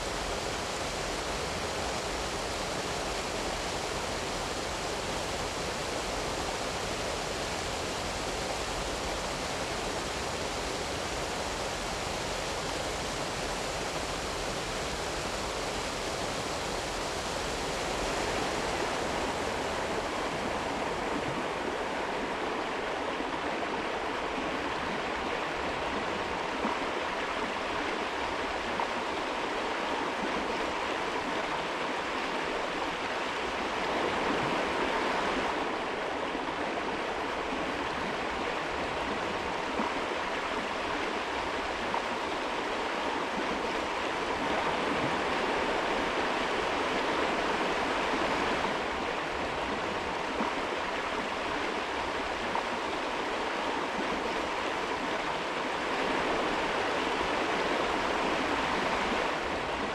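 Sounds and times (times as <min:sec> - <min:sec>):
creek babbling over stones: 0:00.0 - 0:59.9.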